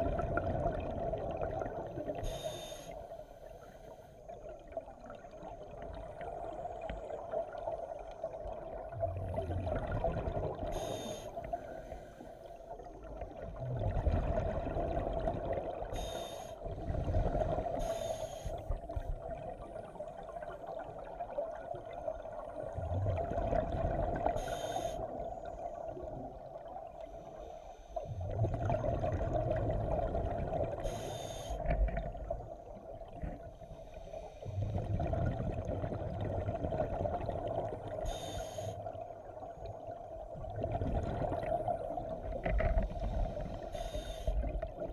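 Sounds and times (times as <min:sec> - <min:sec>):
exhaled bubbles rumbling: 0:00.0 - 0:02.4, 0:04.2 - 0:11.8, 0:12.6 - 0:16.0, 0:16.6 - 0:17.9, 0:18.6 - 0:27.1, 0:28.2 - 0:30.9, 0:31.6 - 0:33.8, 0:34.4 - 0:38.2, 0:38.8 - 0:43.7, 0:44.3 - 0:44.9
regulator inhale hiss: 0:02.2 - 0:04.2, 0:10.6 - 0:12.6, 0:15.9 - 0:18.7, 0:24.3 - 0:25.2, 0:27.0 - 0:28.2, 0:30.8 - 0:31.8, 0:33.6 - 0:34.7, 0:38.0 - 0:39.0, 0:42.8 - 0:44.6.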